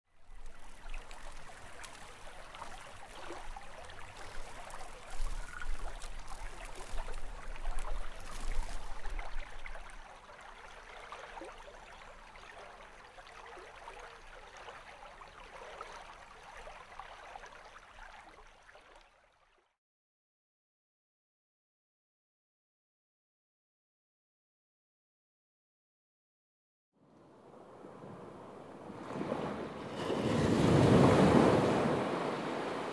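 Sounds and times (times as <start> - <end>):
stream trickling and gurgling: 0.1 - 19.8.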